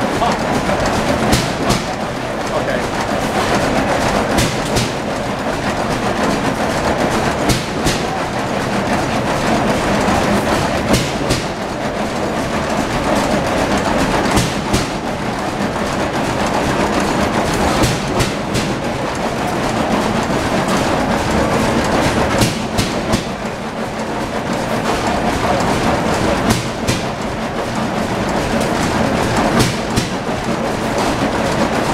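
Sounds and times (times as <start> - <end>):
sharp mechanical clanks: 0.0 - 31.9
stationary engines running: 0.0 - 31.9.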